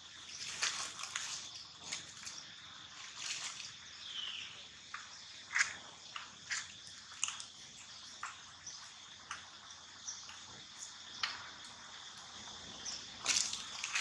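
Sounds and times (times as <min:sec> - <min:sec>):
dry leaves crackling: 0:00.0 - 0:04.1, 0:13.2 - 0:14.0
high insect drone: 0:00.0 - 0:14.0.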